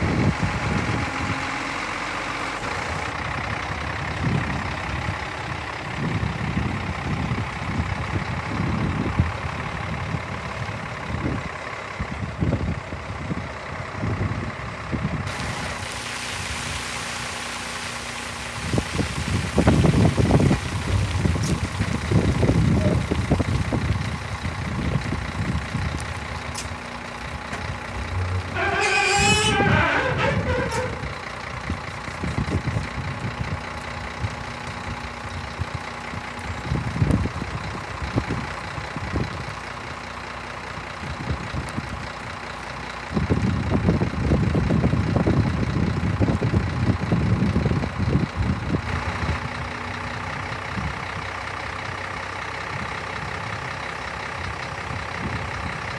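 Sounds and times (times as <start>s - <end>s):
diesel truck engine running: 0.0s - 55.9s
high wavering squeal: 28.2s - 31.1s.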